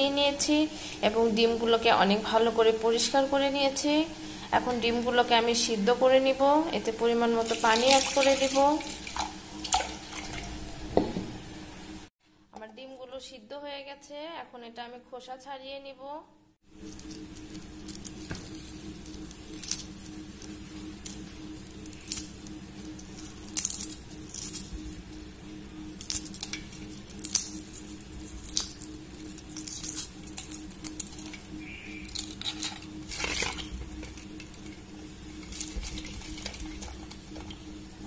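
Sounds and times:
steady low hum: 0:00.0 - 0:12.9, 0:16.2 - 0:38.0
eggshells cracking: 0:26.0 - 0:34.6.

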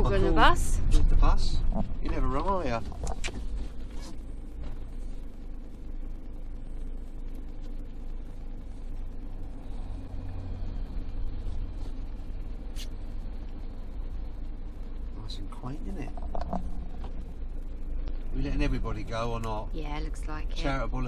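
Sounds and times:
van engine and road noise: 0:00.0 - 0:21.0
bus passing rumble: 0:09.2 - 0:21.0.

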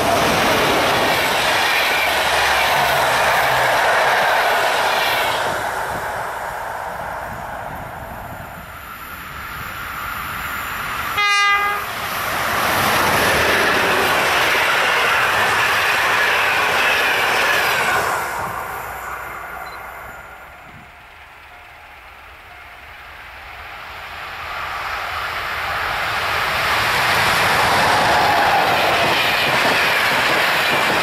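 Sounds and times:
train wheels rushing on rails: 0:00.0 - 0:31.0
short train horn note: 0:11.2 - 0:11.9.

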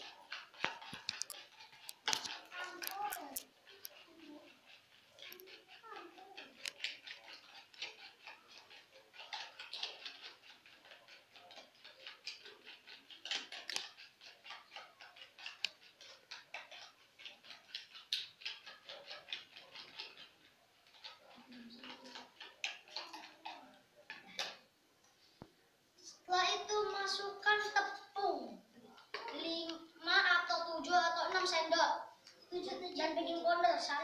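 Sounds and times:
utensil ticking against plastic bowl: 0:00.0 - 0:24.6.

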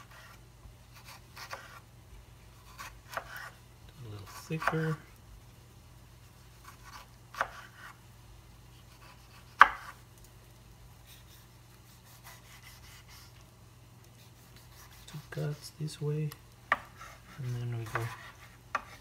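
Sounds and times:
knife slicing tomato: 0:00.0 - 0:01.8, 0:02.6 - 0:03.6, 0:04.2 - 0:05.0, 0:06.5 - 0:08.0, 0:08.7 - 0:10.0, 0:11.1 - 0:13.4, 0:14.2 - 0:15.7, 0:16.7 - 0:19.0.

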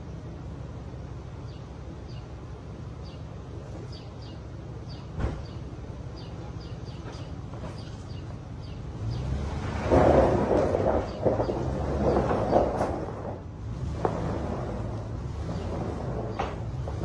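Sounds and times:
vehicle engine rumbling: 0:00.0 - 0:17.0
small birds chirping: 0:01.0 - 0:09.6, 0:10.9 - 0:13.2.

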